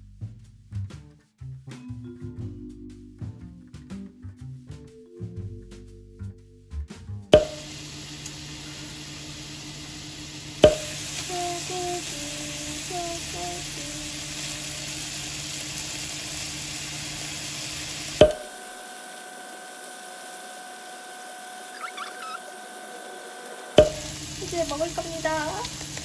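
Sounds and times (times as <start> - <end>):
beef sizzling in a frying pan: 7.6 - 26.0.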